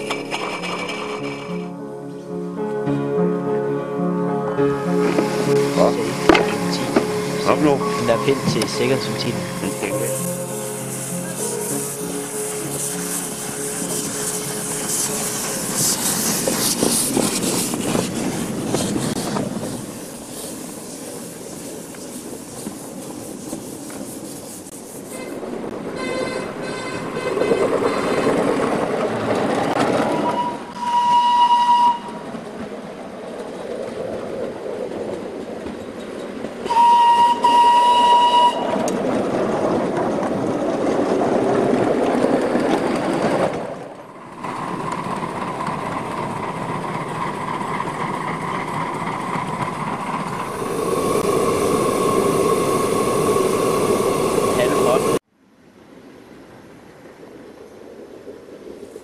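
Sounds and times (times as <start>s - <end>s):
steam locomotive running: 0.0s - 1.9s, 4.8s - 55.2s
steady steam hiss: 5.0s - 25.7s, 48.1s - 55.2s
steam whistle blast: 30.2s - 32.3s, 36.7s - 38.8s.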